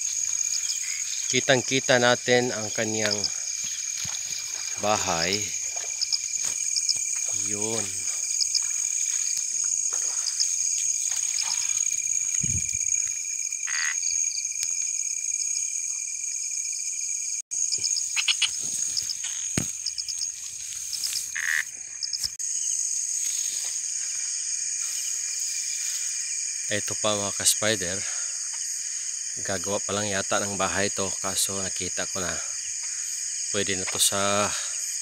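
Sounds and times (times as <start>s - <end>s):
rustling through grass: 0.0s - 1.5s, 2.6s - 13.3s, 18.1s - 22.4s, 23.0s - 26.4s
frog calls: 0.0s - 14.8s, 17.6s - 22.4s
crickets and insects trilling: 0.0s - 35.0s.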